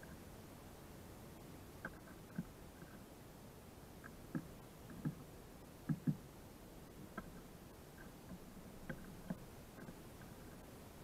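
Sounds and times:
bird pecking on log: 4.0s - 6.2s, 7.1s - 10.6s.

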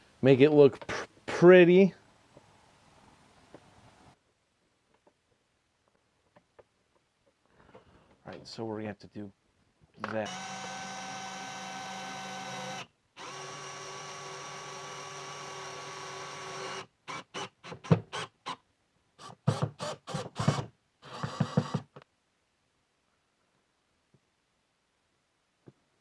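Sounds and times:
cordless driver motor: 10.3s - 17.5s.

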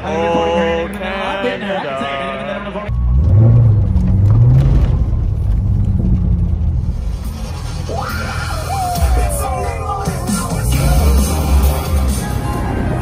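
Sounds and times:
music with heavy bass line: 6.6s - 13.0s.

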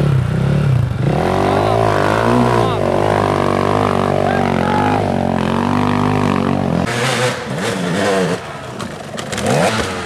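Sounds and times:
dirt bike engine high revs: 0.0s - 10.0s
dirt bike engine revving in bursts: 0.0s - 10.0s
bike clattering and scraping: 5.3s - 10.0s.

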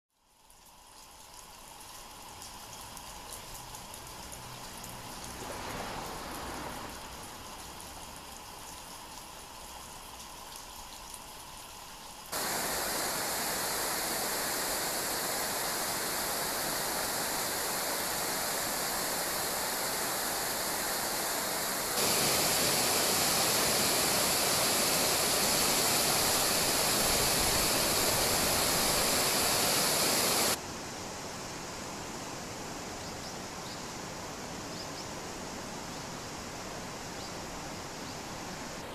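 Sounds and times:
shallow river rushing: 5.0s - 7.9s, 12.3s - 30.6s
water tumbling over rapids: 12.4s - 30.6s.

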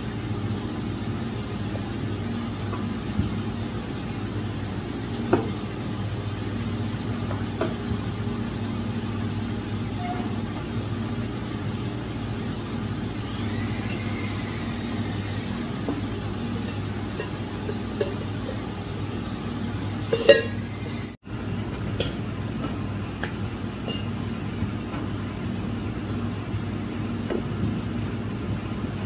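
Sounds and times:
steady low hum: 0.0s - 29.0s
steel pot clinking: 12.6s - 19.0s, 20.0s - 21.2s, 23.8s - 24.2s.

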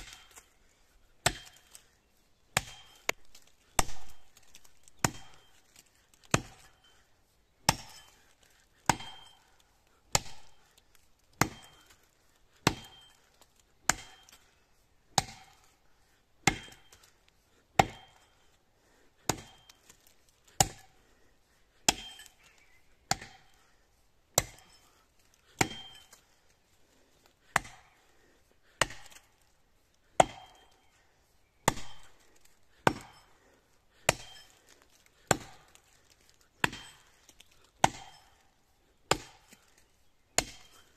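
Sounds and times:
axe chopping into tree trunk: 0.0s - 0.5s, 1.2s - 1.9s, 2.5s - 6.8s, 7.6s - 8.2s, 8.8s - 9.3s, 10.1s - 13.2s, 13.8s - 14.4s, 15.1s - 15.6s, 16.4s - 17.1s, 17.8s - 18.2s, 19.2s - 20.9s, 21.8s - 22.3s, 23.1s - 23.5s, 24.4s - 24.8s, 25.5s - 26.2s, 27.4s - 27.9s, 28.6s - 29.4s, 30.1s - 30.7s, 31.6s - 32.1s, 32.8s - 33.2s, 34.0s - 38.4s, 39.1s - 40.9s.

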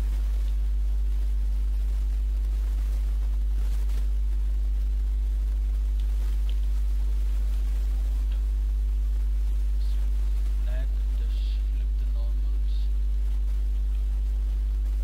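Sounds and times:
faint ticks: 0.0s - 1.4s, 2.0s - 8.5s
electrical mains hum: 0.0s - 15.0s.

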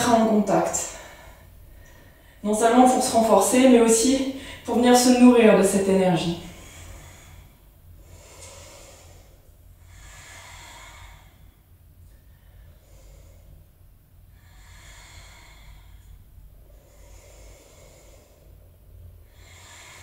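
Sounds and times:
woman breathing slowly: 0.7s - 2.4s, 4.2s - 4.8s, 6.4s - 20.0s.

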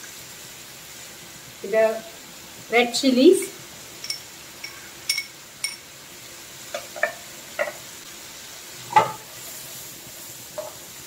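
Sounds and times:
prawns sizzling in pan: 0.0s - 11.0s
spoon clinking on glass bowl: 4.0s - 5.9s.

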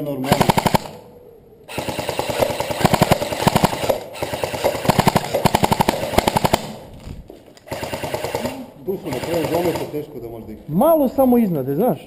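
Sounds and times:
airsoft rifles firing bursts: 0.2s - 1.0s, 1.7s - 6.9s, 7.6s - 10.0s.

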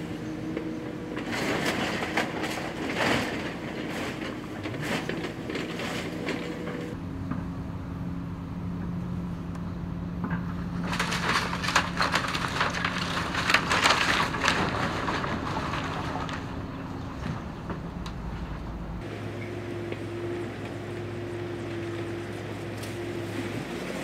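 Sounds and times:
excavator diesel engine running: 0.0s - 24.0s
timber and debris crunching: 0.3s - 7.0s, 10.3s - 19.2s.

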